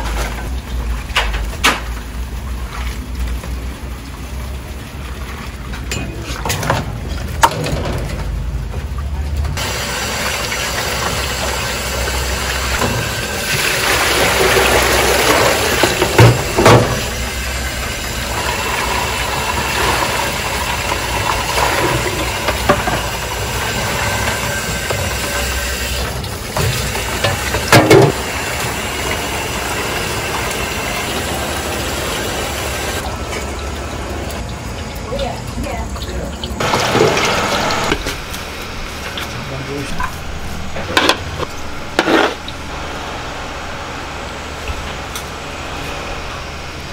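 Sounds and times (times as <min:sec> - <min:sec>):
water pouring and splashing: 0:00.0 - 0:43.3
low hum: 0:37.7 - 0:46.9.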